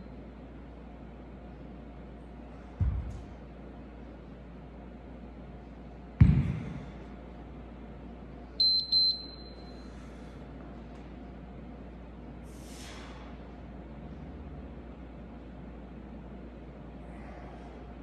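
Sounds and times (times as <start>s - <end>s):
heavy thud on floor: 2.8s - 3.3s, 6.2s - 6.9s
short electronic beeps: 8.6s - 9.8s.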